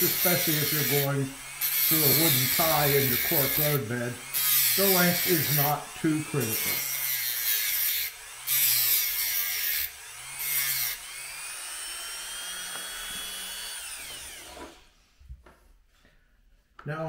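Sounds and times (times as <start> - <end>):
rotary tool grinding metal: 0.0 - 15.0
motor whine: 11.0 - 14.9.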